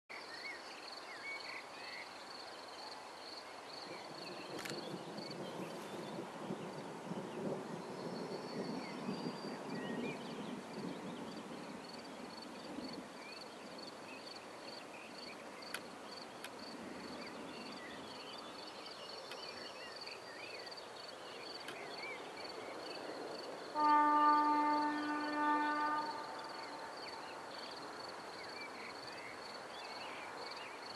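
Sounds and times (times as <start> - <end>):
crickets trilling: 0.9 - 30.9
faint clicks: 4.5 - 4.9, 15.7 - 16.6, 19.2 - 19.5.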